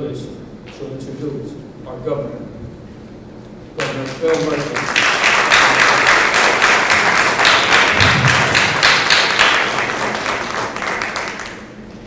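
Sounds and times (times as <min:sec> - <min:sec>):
audience applauding: 0:03.8 - 0:11.8.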